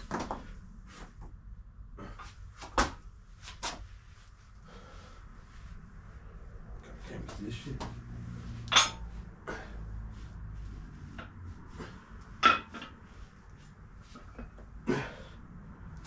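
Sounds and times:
low steady hum: 0:00.0 - 0:16.0
workout equipment knocks and clanks: 0:12.4 - 0:13.0.

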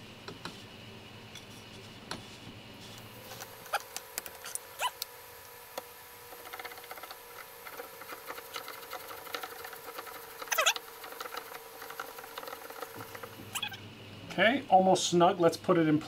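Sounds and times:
short squeak: 0:10.5 - 0:10.8, 0:13.5 - 0:13.8.

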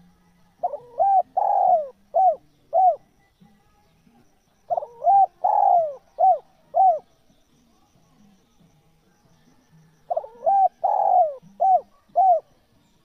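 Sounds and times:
dove cooing: 0:00.6 - 0:03.1, 0:04.7 - 0:07.1, 0:10.1 - 0:12.5.

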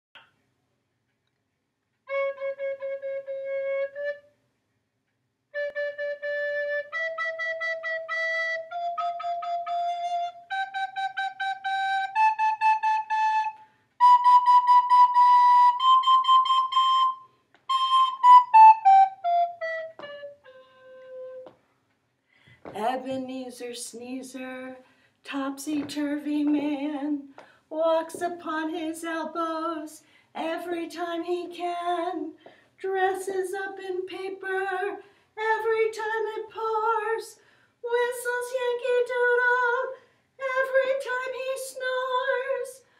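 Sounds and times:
recorder playing a scale: 0:05.6 - 0:21.6.

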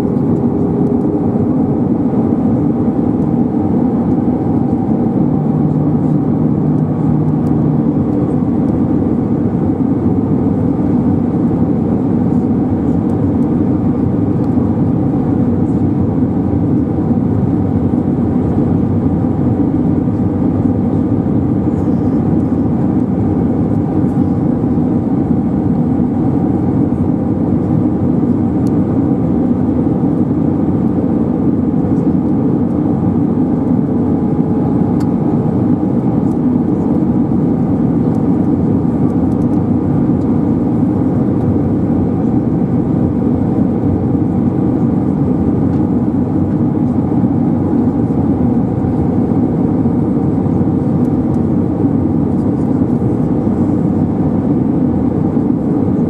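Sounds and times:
aircraft cabin engine rumble: 0:00.0 - 0:56.0.

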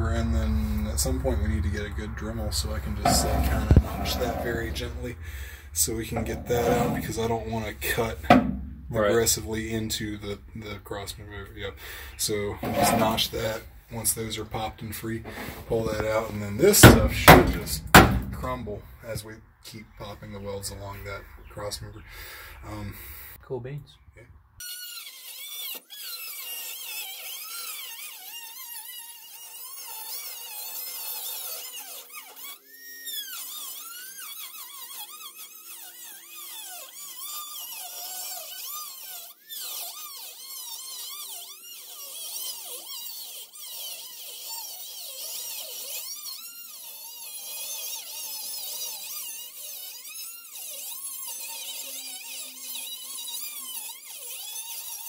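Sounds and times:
cut-off tool cutting steel: 0:02.8 - 0:05.2, 0:06.1 - 0:09.3, 0:12.3 - 0:13.6, 0:15.3 - 0:18.8.

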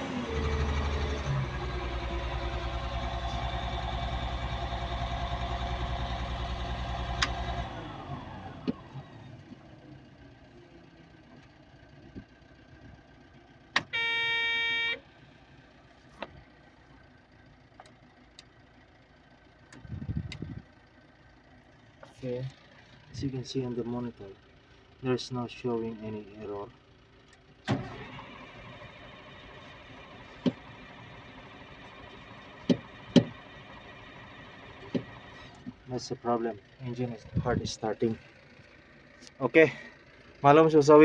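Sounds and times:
diesel engine misfiring: 0:00.0 - 0:10.4, 0:25.9 - 0:41.0.

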